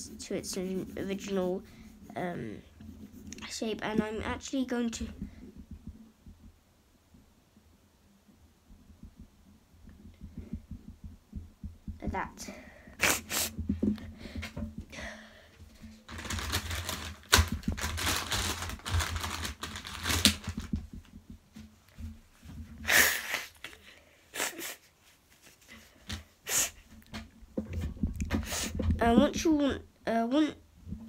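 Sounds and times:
eraser scrubbing on paper: 0.0s - 2.4s
paper rustles and taps: 15.8s - 22.6s.

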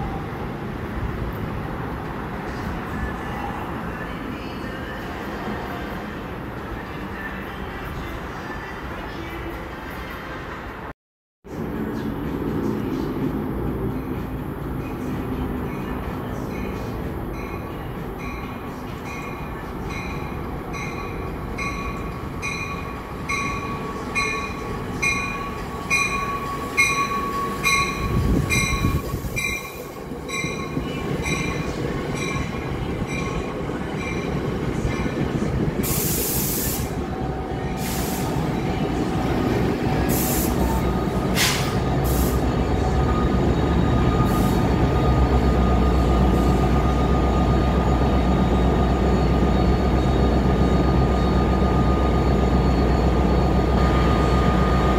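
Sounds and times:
low train rumble: 0.0s - 54.9s
train bell ringing: 14.8s - 35.4s, 42.6s - 54.9s
short bursts of hiss: 35.8s - 37.0s.

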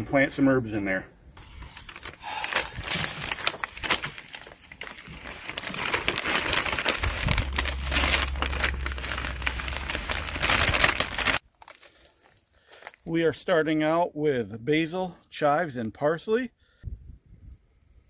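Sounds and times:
plastic bag crinkling: 1.4s - 13.1s
soil pouring: 1.4s - 13.1s.

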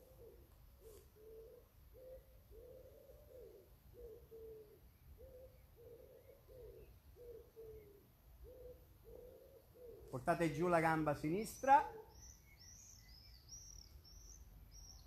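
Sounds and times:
doves cooing: 0.0s - 10.2s
small birds chirping: 0.0s - 15.0s.

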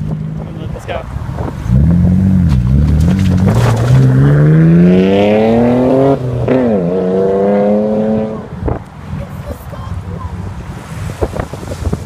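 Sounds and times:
car engine accelerating hard: 1.6s - 8.8s.

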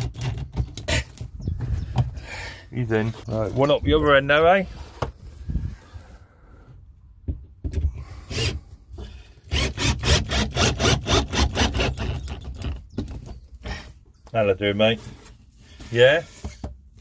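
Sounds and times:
hand saw rubbing on wood: 9.5s - 12.4s.

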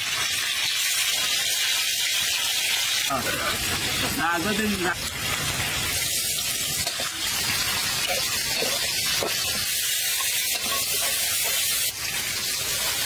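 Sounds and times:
onion sizzling in hot oil: 0.0s - 13.0s
metal spatula stirring in wok: 6.7s - 13.0s.

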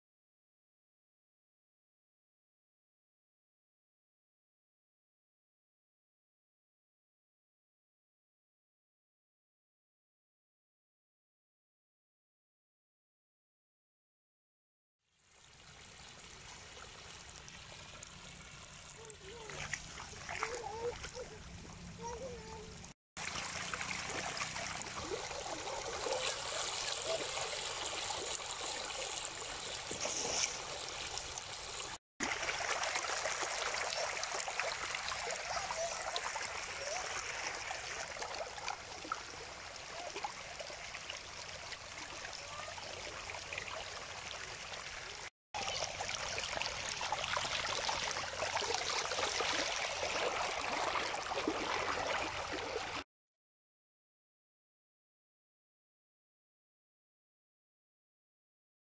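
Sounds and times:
runoff water rushing: 15.5s - 53.0s.

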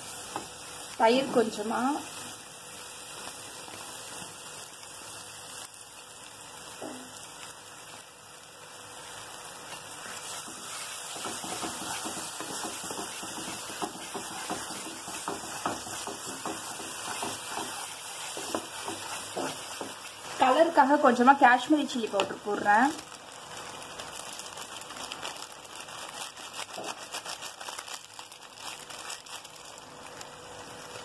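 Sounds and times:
masala sizzling in a frying pan: 0.0s - 31.0s
wooden spatula scraping pan: 10.0s - 20.7s.

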